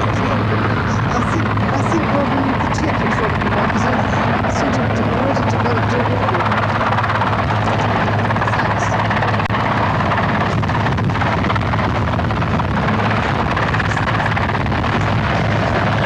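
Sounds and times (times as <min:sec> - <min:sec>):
helicopter rotor drone: 0:00.0 - 0:16.0.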